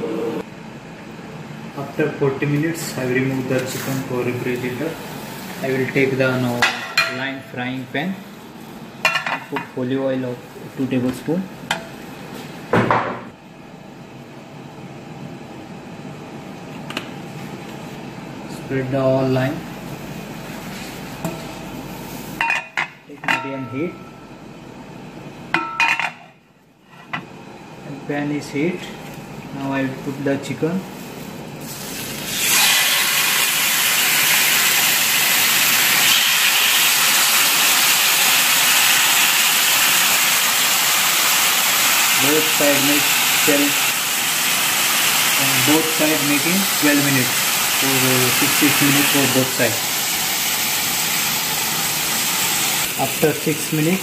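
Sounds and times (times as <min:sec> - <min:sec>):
kitchen hum and hiss: 0:00.0 - 0:54.0
chicken sizzling in hot oil: 0:31.6 - 0:54.0.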